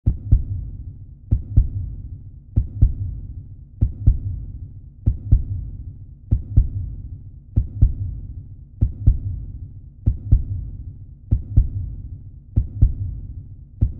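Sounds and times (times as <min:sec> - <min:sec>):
heartbeat thumps: 0:00.1 - 0:13.9.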